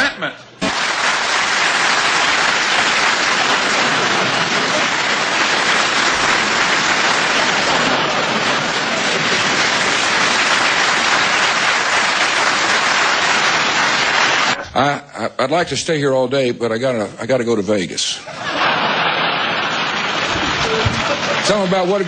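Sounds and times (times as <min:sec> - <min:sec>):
audience applauding: 0:00.6 - 0:14.6, 0:18.4 - 0:22.0.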